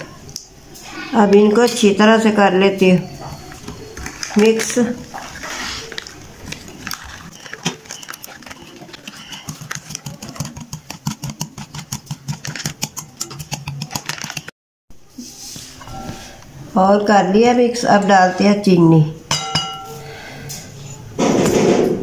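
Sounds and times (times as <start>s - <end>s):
whisk clicking against glass bowl: 7.6s - 14.5s.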